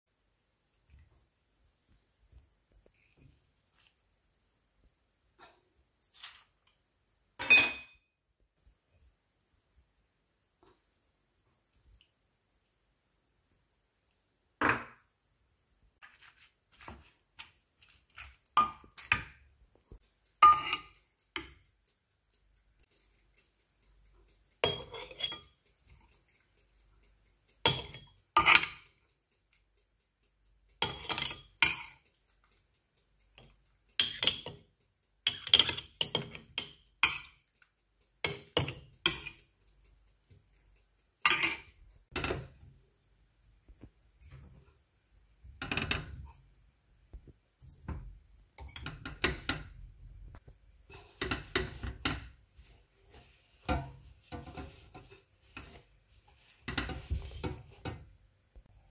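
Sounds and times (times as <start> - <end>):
spoon clinking against glass: 20.4 - 21.0.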